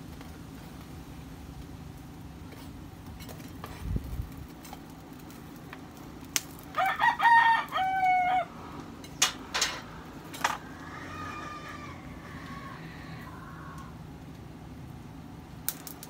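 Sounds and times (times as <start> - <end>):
rooster crowing: 6.7 - 8.8, 10.4 - 14.0.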